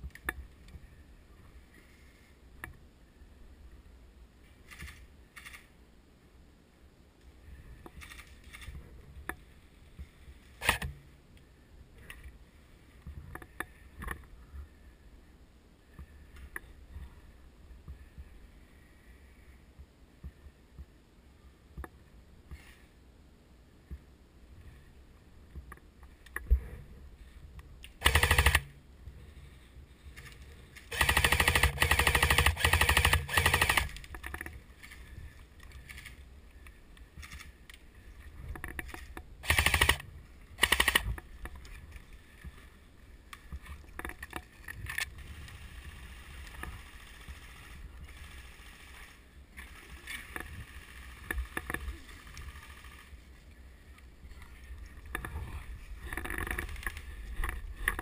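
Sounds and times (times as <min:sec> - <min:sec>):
quiet rustling: 0:00.0 - 0:05.8, 0:07.2 - 0:23.1, 0:28.7 - 0:30.9, 0:33.8 - 0:39.4, 0:40.0 - 0:58.0
airsoft rifle bursts: 0:28.0 - 0:28.8, 0:30.9 - 0:34.0, 0:39.4 - 0:40.0, 0:40.6 - 0:41.1.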